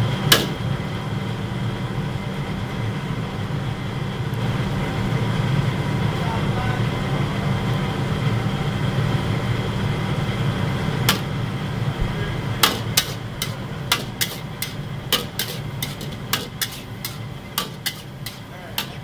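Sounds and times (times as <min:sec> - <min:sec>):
gas burner rumble: 0:00.0 - 0:19.0
metal ladle scraping a wok: 0:12.2 - 0:19.0.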